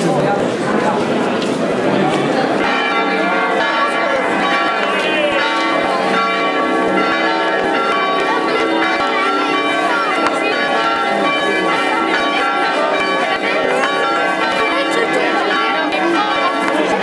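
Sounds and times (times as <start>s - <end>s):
voices chattering: 0.0s - 17.0s
church bells ringing: 2.3s - 17.0s.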